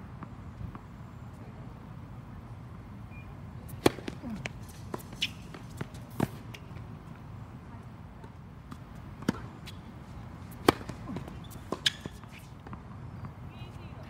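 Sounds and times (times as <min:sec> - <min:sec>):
racket striking tennis ball: 0:03.7 - 0:06.8, 0:08.7 - 0:12.8
tennis ball bouncing: 0:03.7 - 0:07.2, 0:08.2 - 0:13.3.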